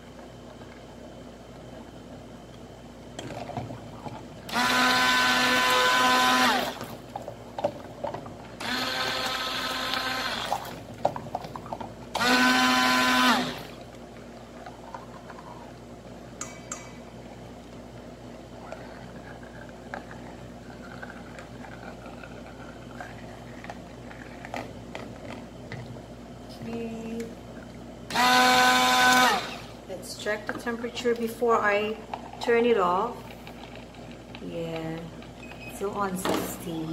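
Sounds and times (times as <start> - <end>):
stick blender motor whining: 4.5 - 6.9, 8.6 - 10.8, 12.1 - 13.8, 28.1 - 29.8.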